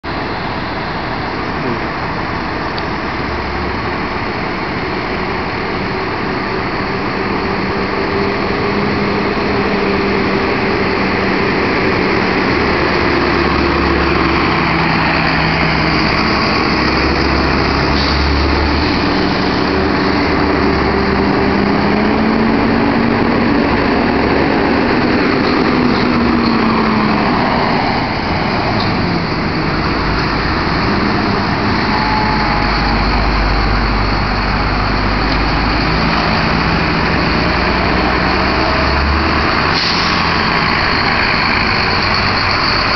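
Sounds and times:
bus diesel engines rumbling: 0:00.0 - 0:42.9.

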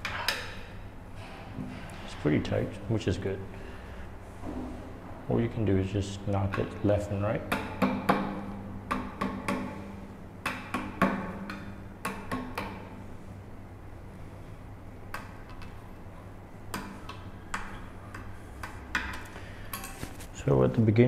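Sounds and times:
mallet knocking wooden stool leg: 0:07.5 - 0:09.7.

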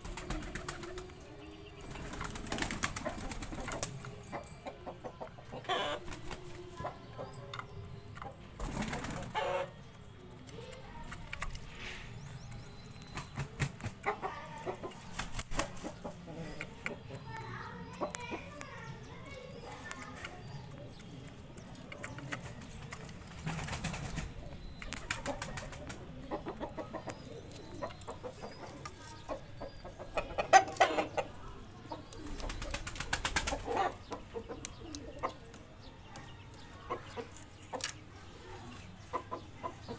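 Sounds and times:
chickens flapping wings: 0:00.0 - 0:01.2, 0:01.9 - 0:04.1, 0:08.6 - 0:09.4, 0:13.1 - 0:14.1, 0:15.0 - 0:16.0, 0:22.6 - 0:26.2, 0:32.2 - 0:33.9
chickens clucking softly: 0:02.9 - 0:09.8, 0:14.0 - 0:22.7, 0:24.4 - 0:39.9.

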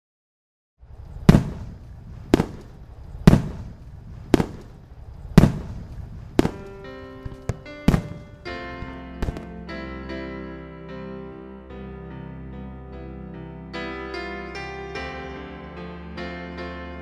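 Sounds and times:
firework bangs with rumble: 0:01.2 - 0:09.5
music with held notes: 0:06.6 - 0:17.0.

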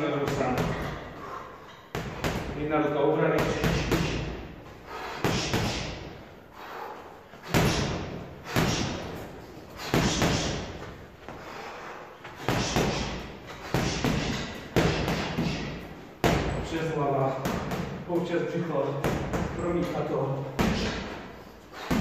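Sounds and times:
boxing gloves striking heavy bag: 0:05.2 - 0:06.1, 0:07.4 - 0:09.2, 0:09.8 - 0:10.8, 0:12.4 - 0:16.7, 0:21.8 - 0:22.0.

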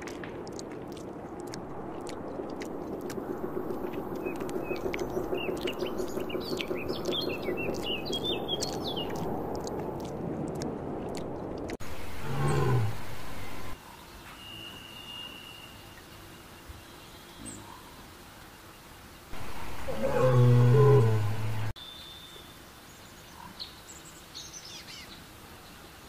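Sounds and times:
small birds chirping: 0:00.5 - 0:10.1, 0:11.8 - 0:18.0, 0:19.4 - 0:25.8
sun bear calling: 0:03.4 - 0:09.3, 0:11.8 - 0:13.8, 0:19.4 - 0:21.7.

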